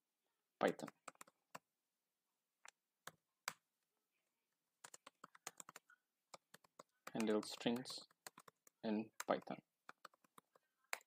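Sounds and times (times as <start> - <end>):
computer keyboard typing: 0.7 - 1.7, 4.8 - 11.0.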